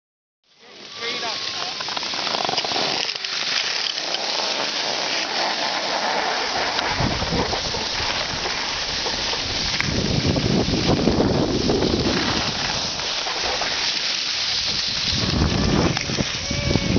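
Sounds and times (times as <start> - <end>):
skis scraping over snow: 0.5 - 16.9
wind buffeting microphone: 6.6 - 13.7, 14.4 - 16.9.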